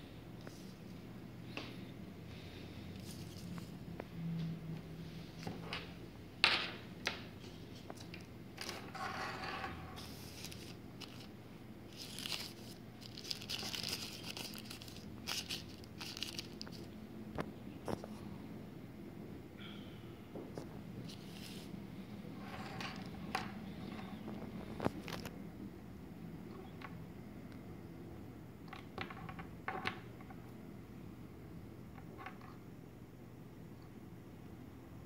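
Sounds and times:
plastic bag crinkling: 0:10.0 - 0:11.3, 0:11.9 - 0:16.9.

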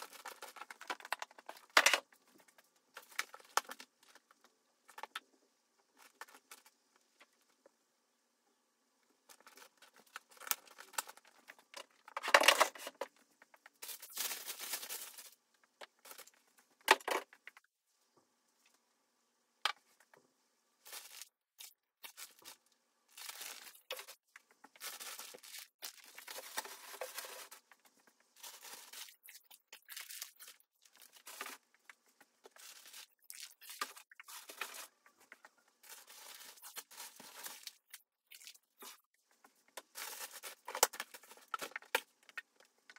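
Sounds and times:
packaging rustling and crinkling: 0:00.0 - 0:04.3, 0:09.3 - 0:15.4, 0:22.0 - 0:38.0, 0:39.8 - 0:42.9.

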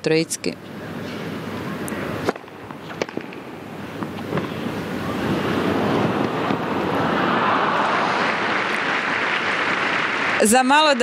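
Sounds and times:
crowd noise: 0:00.6 - 0:11.0
tennis ball struck by rackets: 0:01.9 - 0:06.8.

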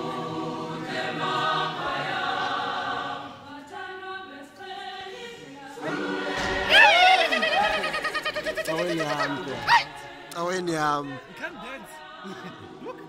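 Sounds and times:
choir singing: 0:00.0 - 0:13.0.

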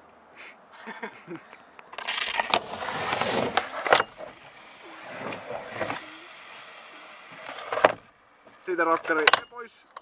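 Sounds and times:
skateboard wheels rolling on asphalt: 0:01.8 - 0:09.1.

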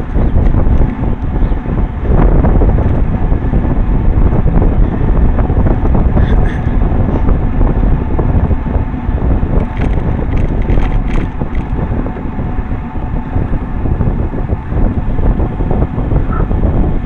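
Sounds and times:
tyre and road rumble: 0:00.0 - 0:17.0
wind buffeting microphone: 0:00.0 - 0:17.0
clicks and rattles: 0:09.6 - 0:11.8.

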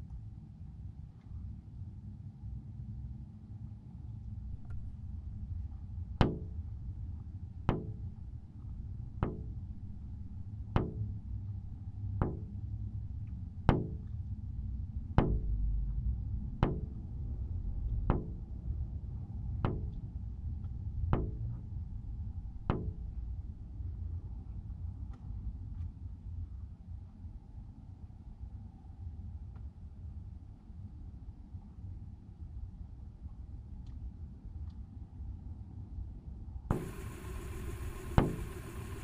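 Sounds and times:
low steady rumble: 0:00.0 - 0:39.0
sharp ringing knocks: 0:10.8 - 0:11.2, 0:36.7 - 0:39.0.

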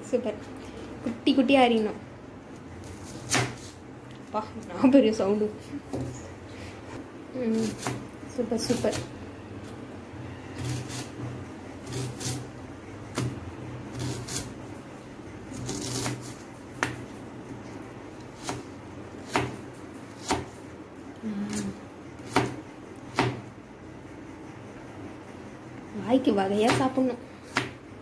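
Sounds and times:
knife slicing onion: 0:02.5 - 0:03.8, 0:07.5 - 0:09.9, 0:10.5 - 0:14.8, 0:15.4 - 0:17.2, 0:18.1 - 0:20.7, 0:21.4 - 0:23.5, 0:26.2 - 0:27.9.

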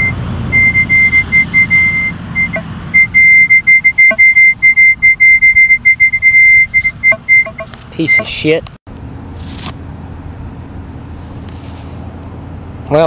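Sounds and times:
metal detector high tone: 0:00.0 - 0:08.5.

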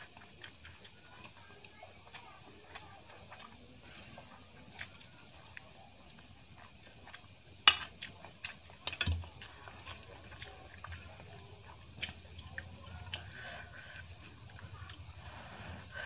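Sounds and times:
fingers mixing rice on steel plate: 0:00.0 - 0:16.0.

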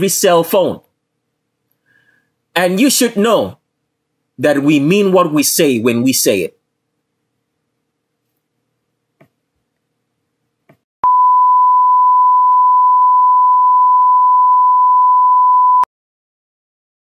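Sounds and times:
steady test tone beep: 0:11.0 - 0:15.9.

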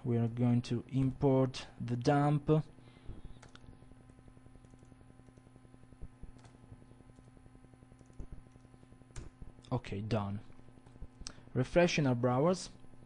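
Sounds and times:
low electrical hum: 0:00.0 - 0:13.0
keyboard keystrokes: 0:08.0 - 0:09.4.

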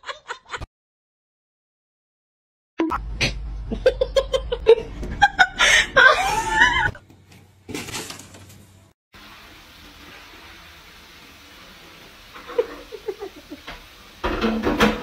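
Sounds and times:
person laughing: 0:03.6 - 0:07.0, 0:12.5 - 0:13.7.

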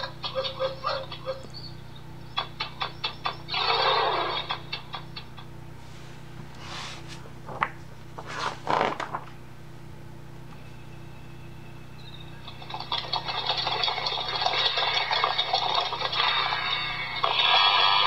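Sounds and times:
book pages turning: 0:06.6 - 0:09.4.

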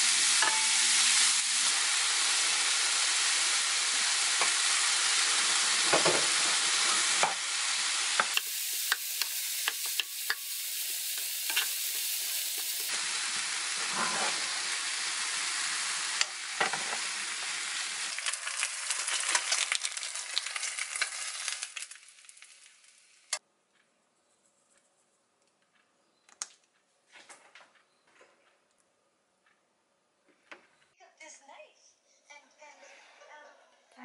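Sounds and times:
rice sizzling in a frying pan: 0:00.0 - 0:23.4
wooden spatula scraping: 0:13.8 - 0:14.6.

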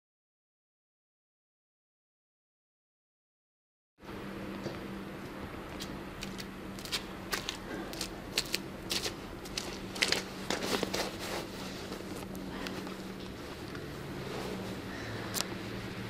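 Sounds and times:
jacket rustling: 0:06.9 - 0:15.0.

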